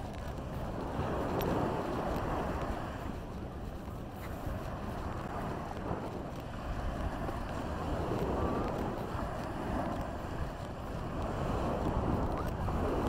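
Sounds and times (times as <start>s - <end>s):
small waves washing on sand: 0.0s - 13.0s
wind buffeting microphone: 0.0s - 13.0s.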